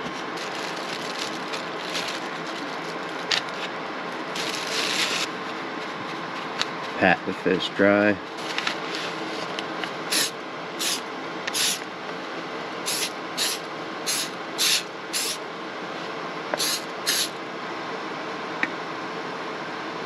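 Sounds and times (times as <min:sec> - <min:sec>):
aerosol spray hissing: 0:10.1 - 0:11.0, 0:12.9 - 0:15.4, 0:16.6 - 0:17.3.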